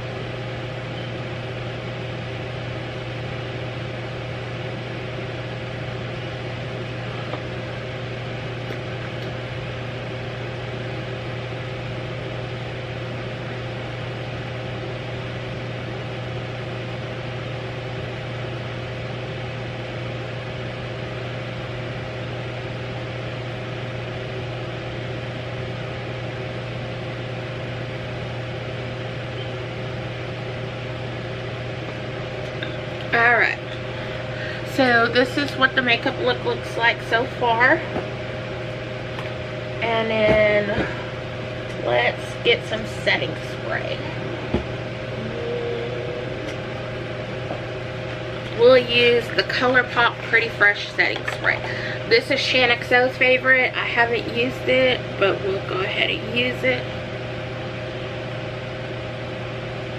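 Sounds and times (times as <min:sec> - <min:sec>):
mechanical hum: 0:00.0 - 0:59.9.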